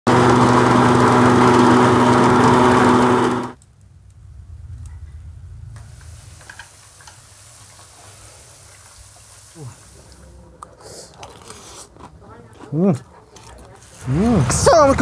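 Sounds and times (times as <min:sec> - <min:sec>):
noodle machine motor hum: 0:00.1 - 0:03.6.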